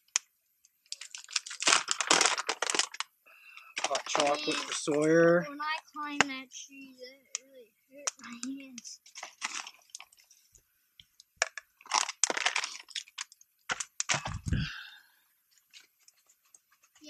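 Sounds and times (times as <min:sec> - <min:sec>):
paper packet crinkling and tearing: 0:00.9 - 0:03.1, 0:03.8 - 0:05.0, 0:09.0 - 0:10.3, 0:11.4 - 0:14.6.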